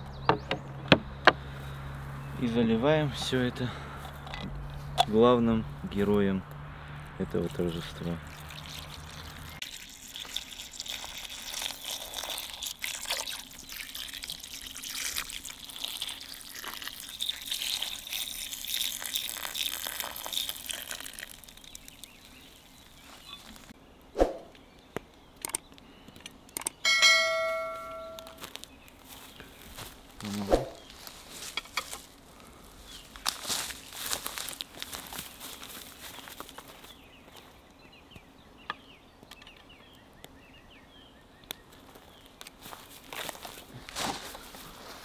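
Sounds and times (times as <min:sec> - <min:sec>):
wine pouring and splashing: 0:07.3 - 0:23.1
short ringing chime: 0:26.8 - 0:28.4.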